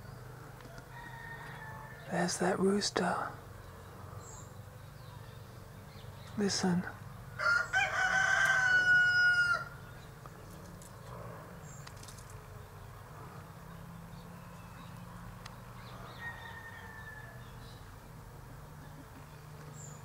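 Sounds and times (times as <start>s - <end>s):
rooster crowing: 0.7s - 2.1s, 7.4s - 9.8s, 15.9s - 17.6s.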